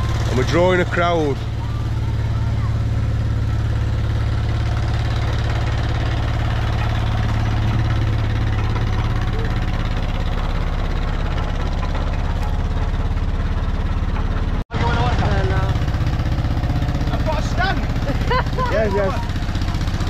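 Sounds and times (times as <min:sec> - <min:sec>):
engine droning steadily: 0:00.0 - 0:20.0.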